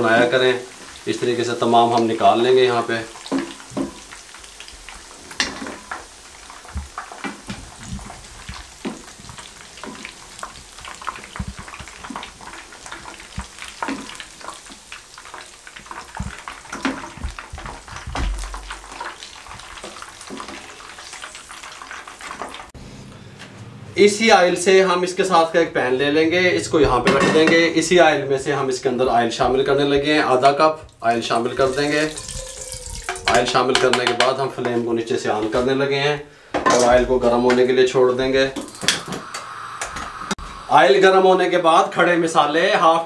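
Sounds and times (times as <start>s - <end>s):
oil crackling and sizzling in pan: 0.0s - 22.8s, 29.1s - 34.0s, 36.8s - 43.0s
wooden spatula knocking on pan: 33.1s - 34.8s.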